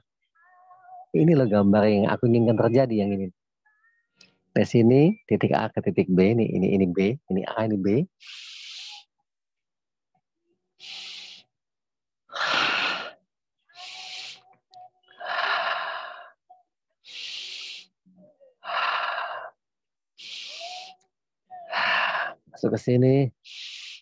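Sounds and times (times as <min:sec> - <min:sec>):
person breathing close up: 0:08.2 - 0:09.2, 0:10.8 - 0:11.6, 0:12.3 - 0:14.5, 0:15.2 - 0:18.0, 0:18.6 - 0:21.0, 0:21.6 - 0:22.5, 0:23.4 - 0:24.0.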